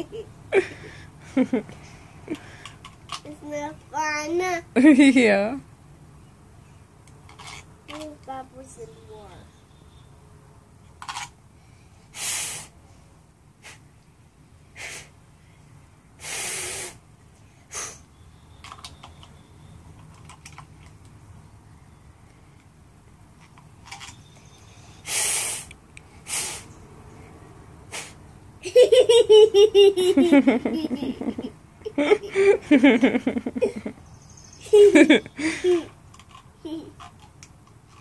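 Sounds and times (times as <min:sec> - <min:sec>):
child blowing puffs of breath: 0:11.6 - 0:12.8, 0:13.6 - 0:13.8, 0:14.7 - 0:15.2, 0:16.2 - 0:18.1, 0:24.8 - 0:26.7, 0:27.9 - 0:28.2, 0:35.4 - 0:36.0.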